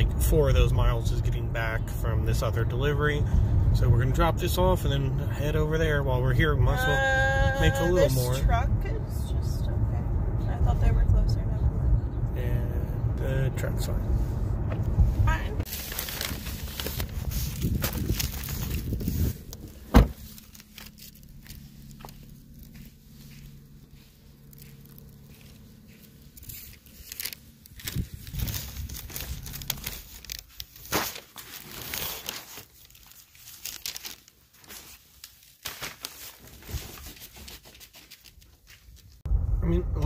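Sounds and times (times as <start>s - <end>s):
car engine running: 0.0s - 30.1s
plastic bag rustling: 15.6s - 39.2s
footsteps: 17.5s - 28.9s
car door shutting: 19.8s - 20.4s.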